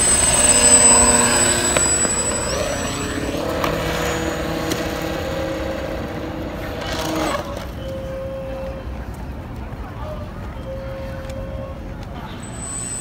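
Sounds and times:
electric motor and propeller whine: 0.0s - 8.2s, 12.4s - 13.0s.

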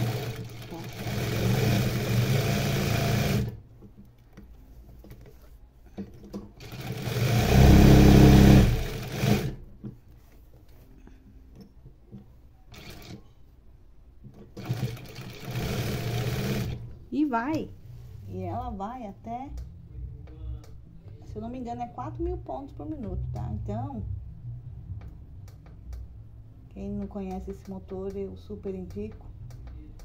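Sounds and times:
industrial sewing machine stitching: 0.0s - 3.6s, 6.6s - 9.6s, 12.7s - 13.2s, 14.6s - 16.8s.

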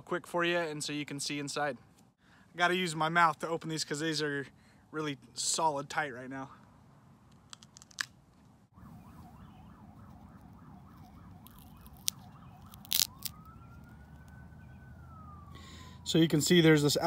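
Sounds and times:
almond hull snapping: 7.4s - 8.2s, 10.9s - 14.4s
emergency siren: 8.7s - 17.0s.

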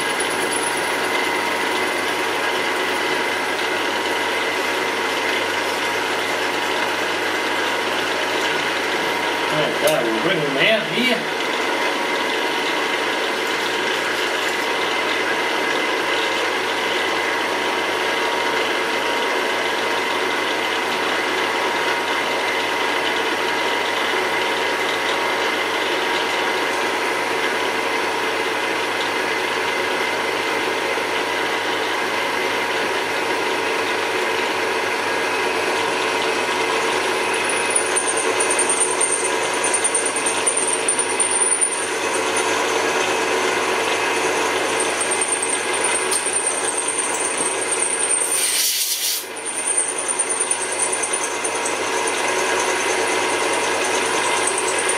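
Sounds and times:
drill press cutting metal: 33.0s - 54.9s.

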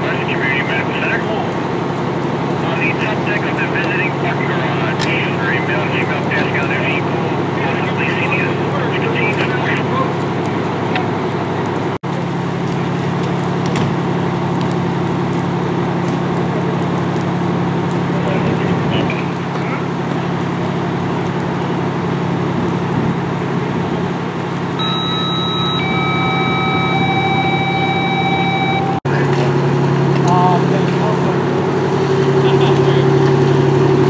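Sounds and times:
fire truck engine humming: 0.0s - 34.0s
high-pitched tones: 24.8s - 29.2s.

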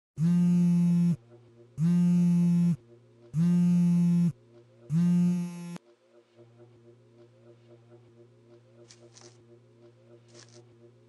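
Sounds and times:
phone vibrating on wooden table: 0.2s - 5.8s.

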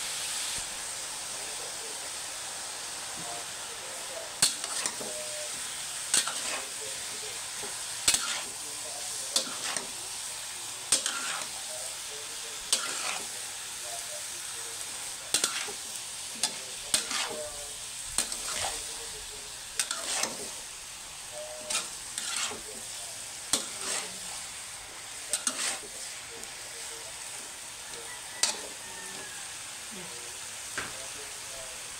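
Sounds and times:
food sizzling in frying: 0.0s - 31.9s
metal spatula scraping wok: 4.4s - 5.5s, 6.1s - 6.8s, 7.8s - 8.6s, 9.3s - 10.0s, 10.9s - 11.6s, 12.7s - 13.4s, 15.3s - 17.5s, 18.1s - 18.9s, 19.8s - 20.7s, 21.3s - 26.2s, 28.4s - 29.3s.

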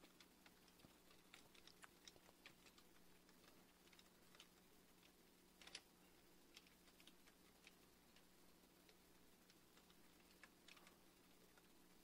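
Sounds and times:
keyboard keys clicking: 0.0s - 5.9s
faint steady hum: 0.0s - 12.0s.

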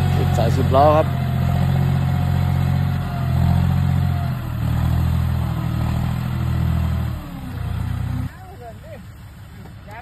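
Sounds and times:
tractor diesel engine running: 0.0s - 8.4s.

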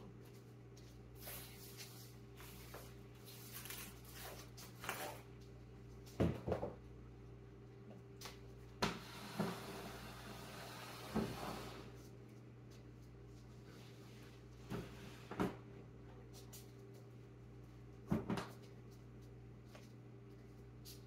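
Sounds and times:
broom sweeping hard floor: 0.8s - 5.2s.

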